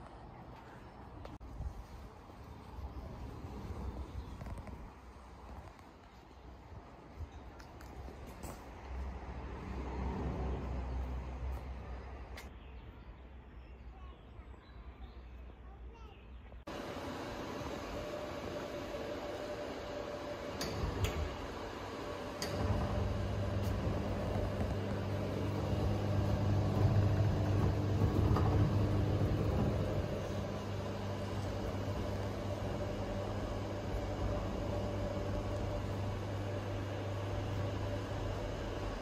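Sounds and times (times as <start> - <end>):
steady low hum: 16.7 - 39.0.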